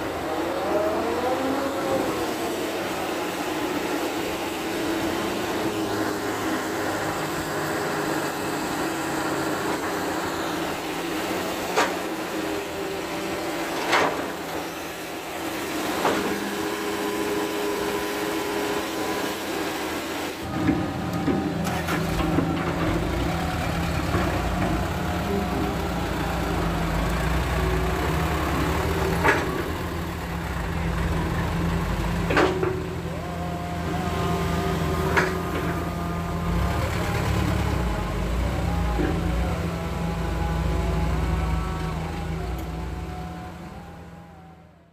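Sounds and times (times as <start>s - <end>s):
diesel engines running: 0.0s - 44.9s
deep engine rumble: 20.5s - 44.8s.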